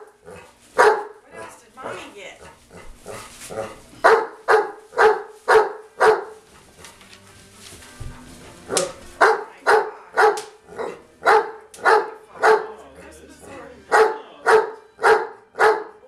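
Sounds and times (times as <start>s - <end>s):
dog barking: 0.0s - 6.4s, 8.8s - 12.8s, 13.9s - 16.0s.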